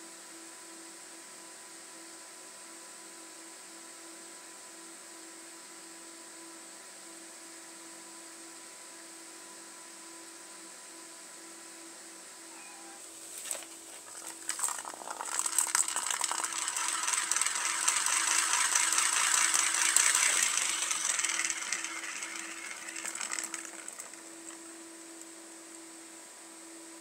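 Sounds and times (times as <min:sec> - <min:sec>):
plastic ball rattling around track: 0:13.4 - 0:25.2.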